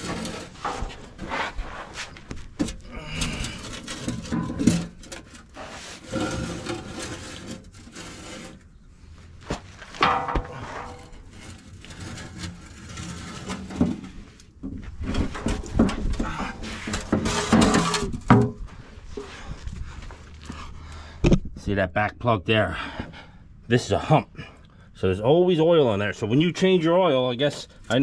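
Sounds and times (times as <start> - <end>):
oil pan scraping on concrete: 0.0 - 20.2.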